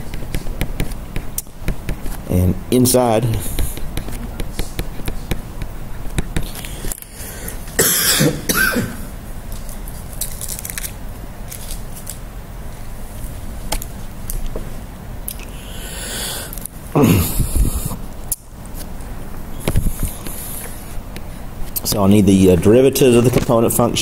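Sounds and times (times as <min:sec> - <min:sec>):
man coughing: 0:07.8 - 0:09.1, 0:16.9 - 0:17.5.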